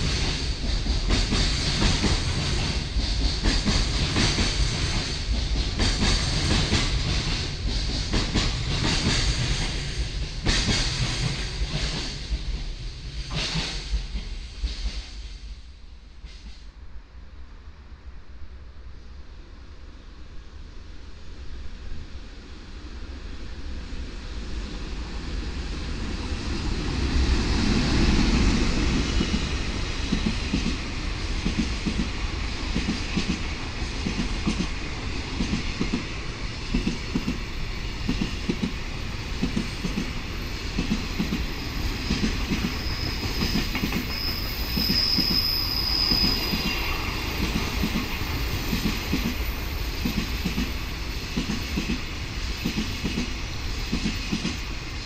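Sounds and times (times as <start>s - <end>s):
electric locomotive passing: 0.0s - 55.0s
high wheel squeal: 41.2s - 48.8s.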